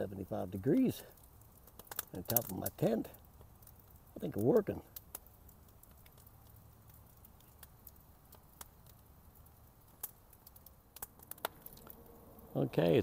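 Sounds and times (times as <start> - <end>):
faint clicks: 1.1 - 2.6, 9.9 - 12.2.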